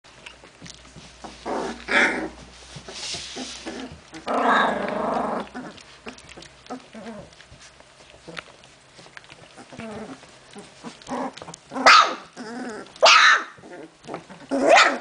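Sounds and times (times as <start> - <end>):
soft scuffling: 0.4 - 11.7.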